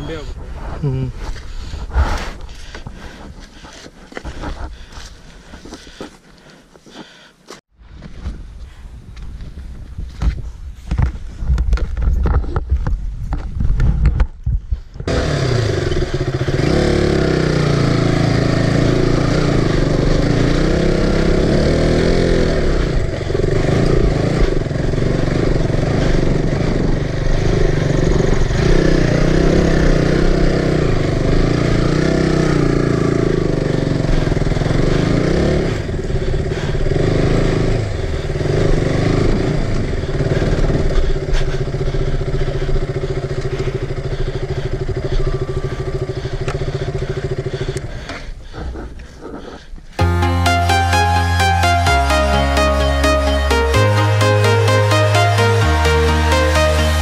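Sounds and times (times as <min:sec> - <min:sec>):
motorcycle engine revving: 0:15.1 - 0:57.0.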